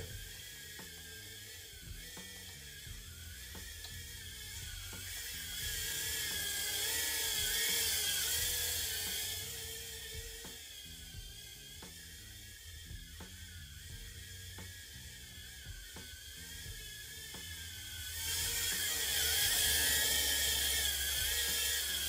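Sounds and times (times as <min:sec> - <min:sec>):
drone motors whining: 0:00.0 - 0:22.0.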